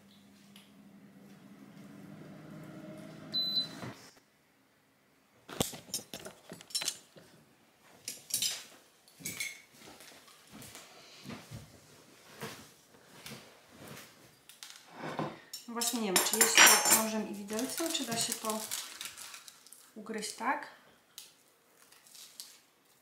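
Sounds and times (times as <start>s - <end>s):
cutlery and dishes clinking: 5.6s - 7.3s, 8.0s - 9.7s, 15.0s - 17.2s.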